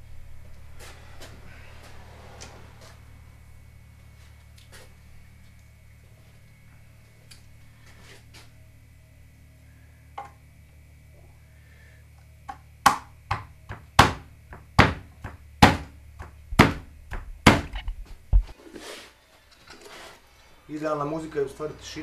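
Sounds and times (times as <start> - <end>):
low steady hum: 0.0 - 18.6.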